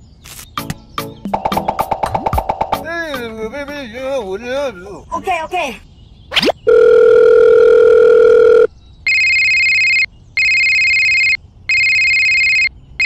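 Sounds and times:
electronic phone ringing: 6.7 - 12.7.

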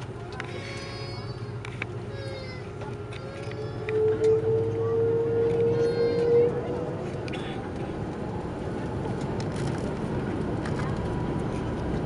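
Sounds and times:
aircraft cabin rumble and hiss: 0.0 - 12.0.

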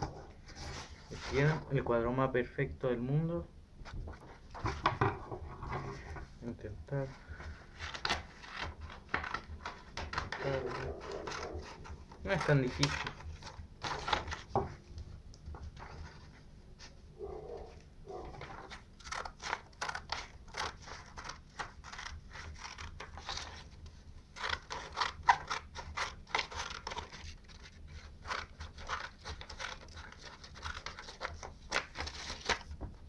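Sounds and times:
paper rustling: 3.9 - 6.3, 7.2 - 33.0
scissors cutting paper: 7.8 - 14.5, 18.1 - 23.7, 24.3 - 32.6.

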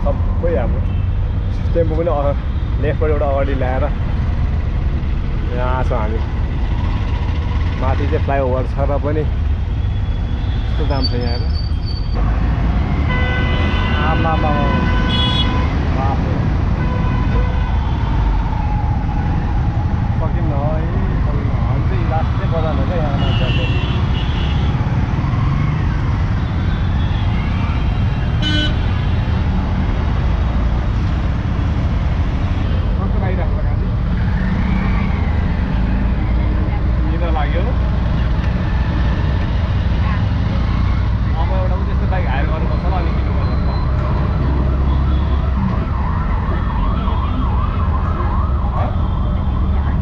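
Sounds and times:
engine and road rumble: 0.0 - 50.0
car horn toot: 13.1 - 15.7, 23.2 - 24.7, 28.4 - 29.0
siren wailing: 17.2 - 22.6, 24.7 - 28.3, 34.1 - 36.4, 42.6 - 50.0.

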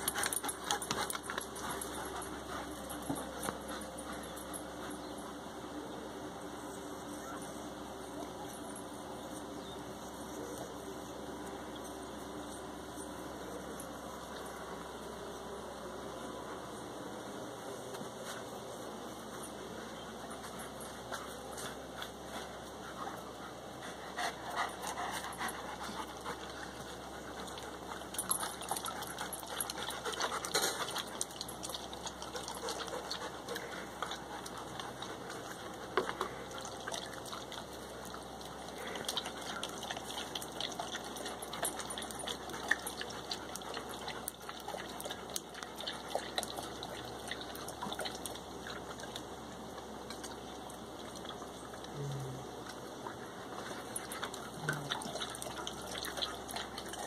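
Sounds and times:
dogs lapping water from metal bowl: 0.0 - 5.2, 24.1 - 51.9, 52.6 - 57.0.

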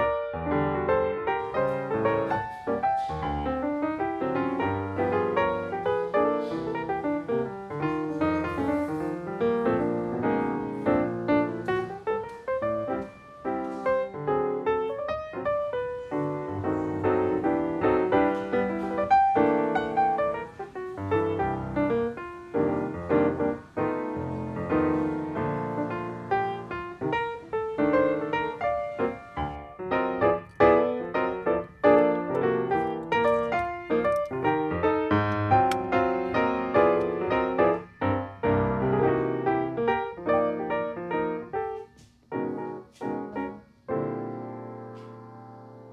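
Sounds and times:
piano music: 0.0 - 45.9.

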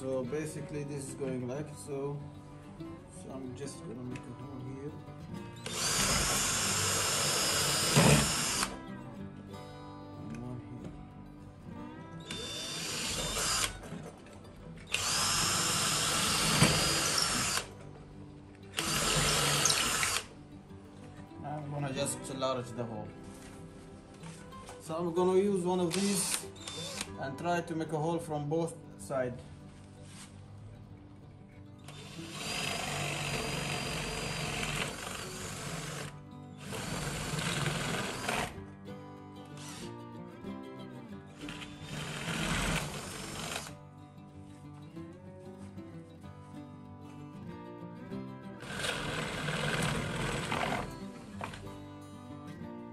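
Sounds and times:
background music: 0.0 - 52.9
cordless drill boring wood: 5.6 - 8.8, 12.3 - 14.0, 14.9 - 17.7, 18.7 - 20.3, 25.9 - 27.1, 31.9 - 38.6, 39.6 - 39.9, 41.4 - 43.8, 48.6 - 51.6.

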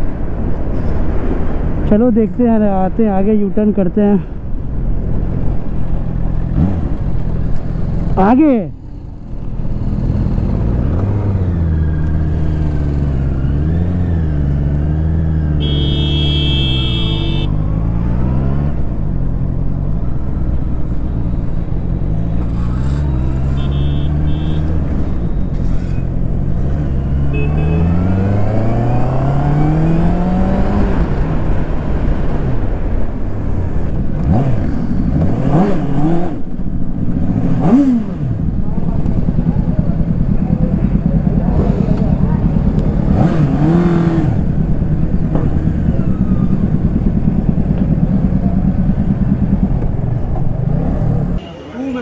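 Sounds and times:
motorcycle engine revving: 8.9 - 51.4
vehicle horn: 15.6 - 17.6, 23.2 - 24.8, 27.3 - 28.0.

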